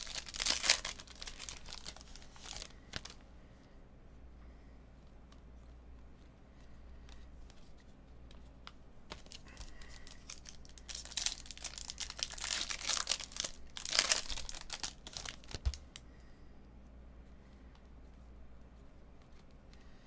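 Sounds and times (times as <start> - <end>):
foil wrapper crinkling and tearing: 0.0 - 3.2, 9.1 - 15.9.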